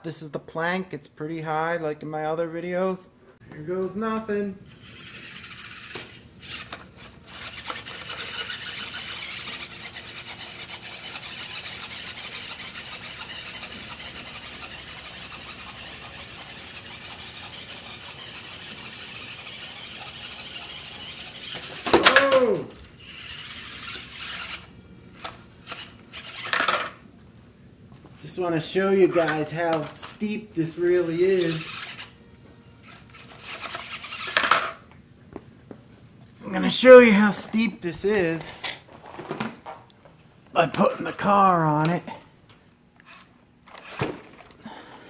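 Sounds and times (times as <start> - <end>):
electric motor and gears whirring: 3.5 - 27.0, 28.0 - 35.0.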